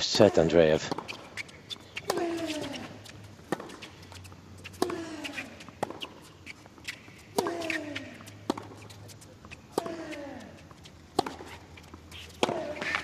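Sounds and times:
tennis ball hit by racquet: 0.8 - 9.0, 12.2 - 13.0.

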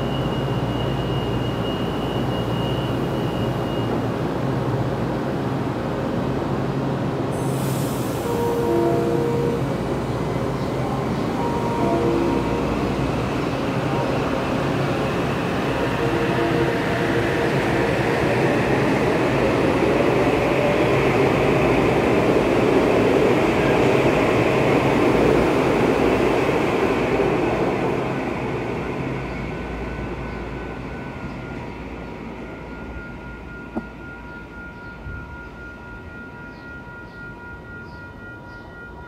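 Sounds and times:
train wheel rush: 0.0 - 39.0.

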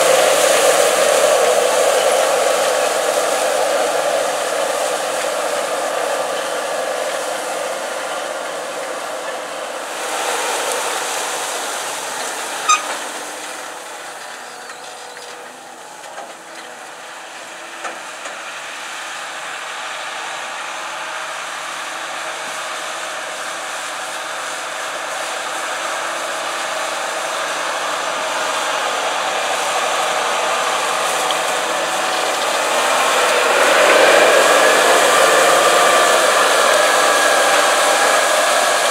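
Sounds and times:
tractor engine under load: 0.0 - 38.9
short sharp high sound: 12.6 - 13.2.

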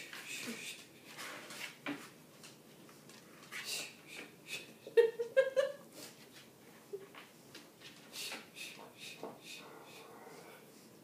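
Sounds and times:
rhythmic breath puffs: 8.0 - 11.0.

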